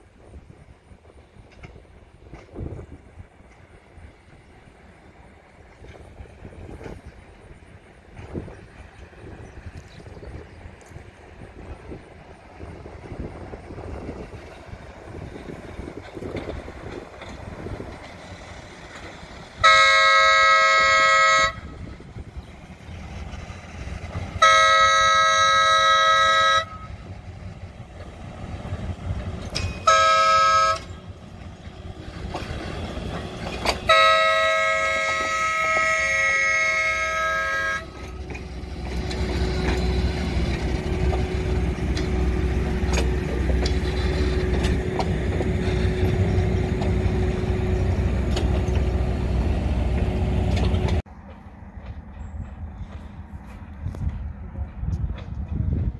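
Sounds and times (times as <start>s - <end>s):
train rumbling past: 0.0s - 55.9s
locomotive air horn blasts: 19.6s - 21.8s, 24.4s - 27.0s, 29.8s - 31.0s, 33.7s - 38.2s.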